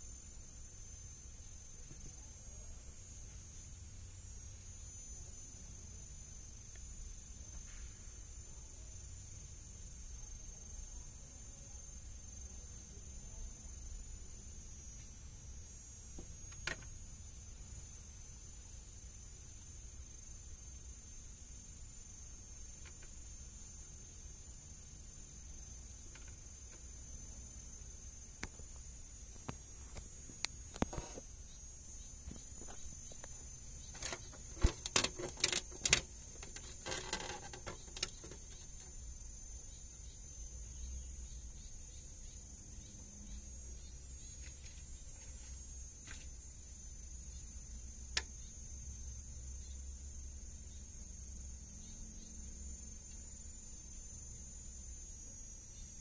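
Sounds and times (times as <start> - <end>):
insects chirring: 0.0 - 56.0
sharp clicks and knocks: 16.2 - 16.9, 32.3 - 39.0.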